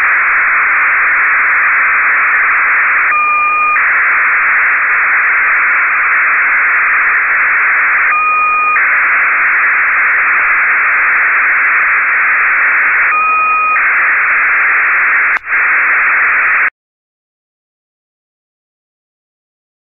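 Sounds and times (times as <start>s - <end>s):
radio signal hissing buzz: 9.7s - 16.6s.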